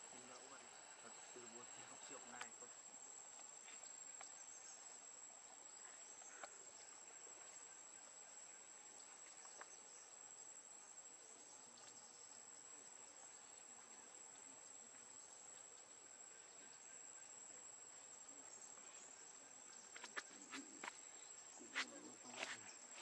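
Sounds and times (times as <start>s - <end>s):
faint ticks: 0.1s - 2.7s, 3.3s - 4.4s, 5.8s - 7.7s, 9.0s - 9.8s.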